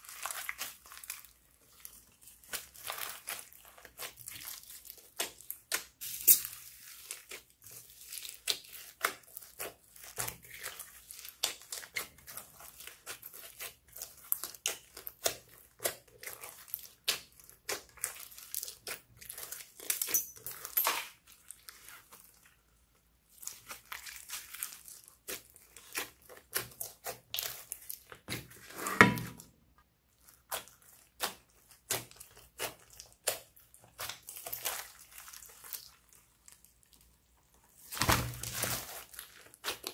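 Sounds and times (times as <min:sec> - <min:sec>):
slime squished by hand: 0:00.0 - 0:22.5, 0:37.8 - 0:39.9.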